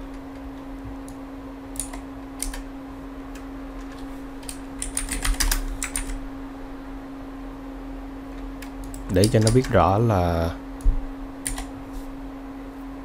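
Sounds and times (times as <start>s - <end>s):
keyboard typing: 1.8s - 2.7s, 3.8s - 6.2s, 8.6s - 9.9s, 11.4s - 11.7s.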